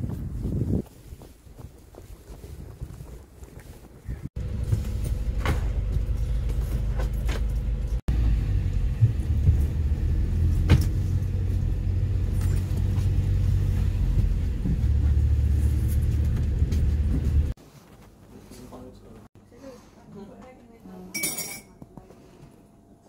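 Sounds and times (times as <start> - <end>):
motor vehicle running: 4.4 - 17.6.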